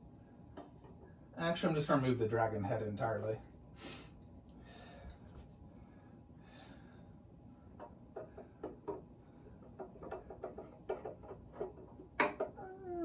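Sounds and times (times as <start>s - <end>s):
soft breath: 3.8s - 7.7s.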